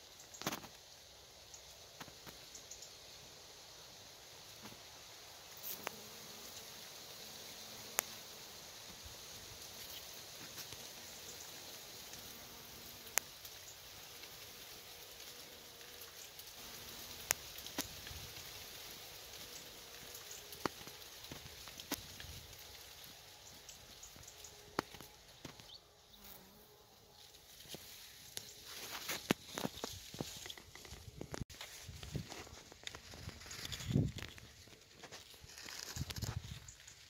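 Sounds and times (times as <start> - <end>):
steady hiss: 0.0 - 37.0
honeybees buzzing: 5.5 - 31.4.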